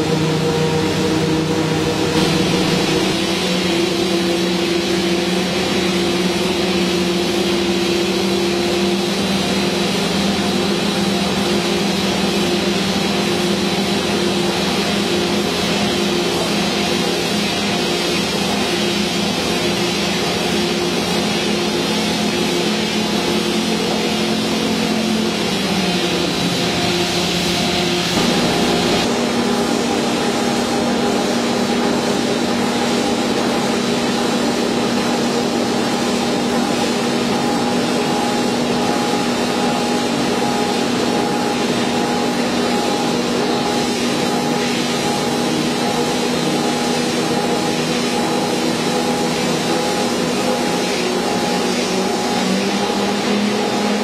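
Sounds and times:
veneer lathe running: 0:02.2 - 0:03.3, 0:28.2 - 0:29.1.

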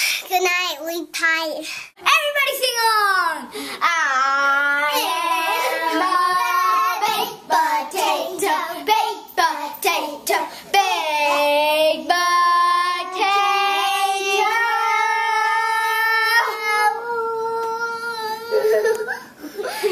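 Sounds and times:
child singing: 0:03.8 - 0:18.7.

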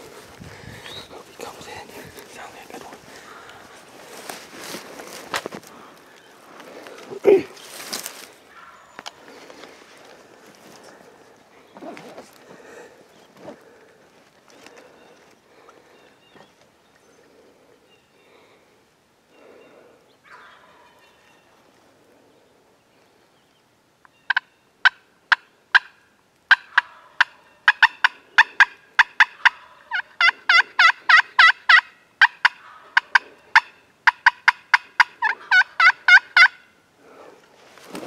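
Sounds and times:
turkey calling: 0:05.7 - 0:09.4, 0:19.4 - 0:21.4, 0:24.1 - 0:37.3
turkey gobble: 0:20.2 - 0:21.1, 0:24.3 - 0:36.8.

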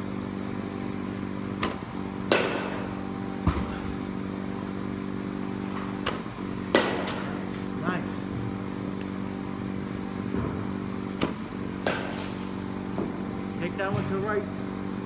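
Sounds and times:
machine hum: 0:00.0 - 0:15.0
bat cracking into baseball: 0:01.6 - 0:02.9, 0:05.9 - 0:07.5, 0:11.2 - 0:12.5.

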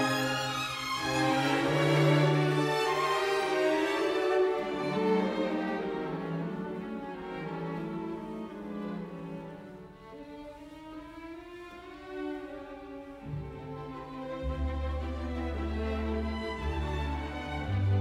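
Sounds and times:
slow bowed string music: 0:00.0 - 0:18.0.

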